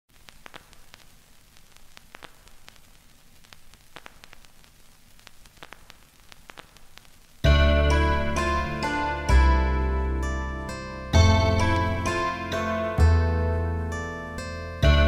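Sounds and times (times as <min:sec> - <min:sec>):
static hiss: 0:00.0 - 0:15.0
sharp clicks: 0:00.3 - 0:04.6.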